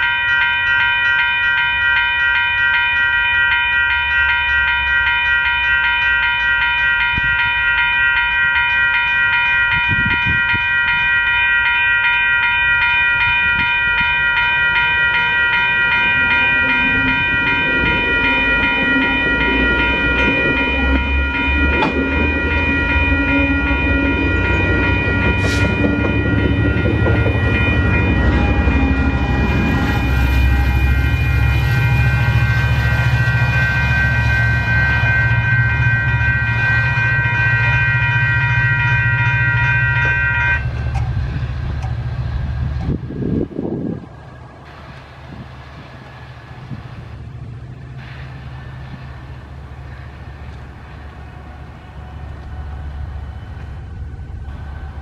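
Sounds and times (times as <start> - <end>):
level crossing warning bell: 0.0 - 43.5
train wheels rumbling on rails: 0.0 - 55.0.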